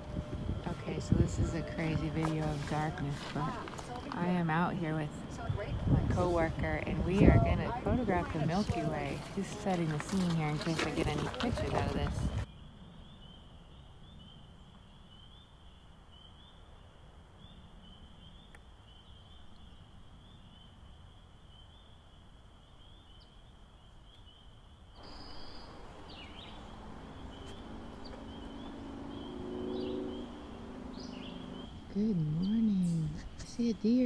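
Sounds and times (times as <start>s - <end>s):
low hum: 0.0s - 15.0s, 25.0s - 34.0s
outdoor ambience: 0.0s - 34.0s
bird calls: 22.7s - 34.0s.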